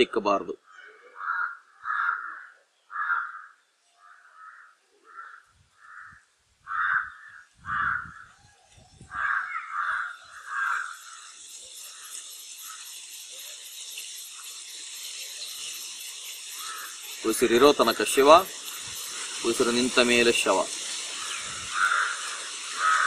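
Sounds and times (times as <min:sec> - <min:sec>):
crow cawing: 0:01.0 - 0:08.4, 0:09.1 - 0:13.0, 0:16.2 - 0:17.2, 0:20.9 - 0:23.0
steady high hiss: 0:05.6 - 0:23.0.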